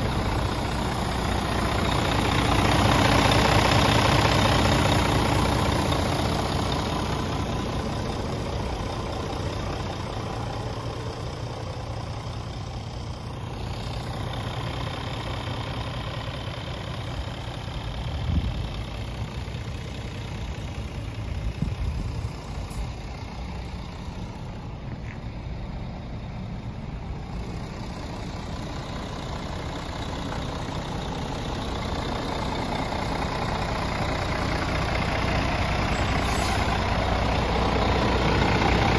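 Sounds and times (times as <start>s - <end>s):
diesel truck engine idling: 0.0s - 38.9s.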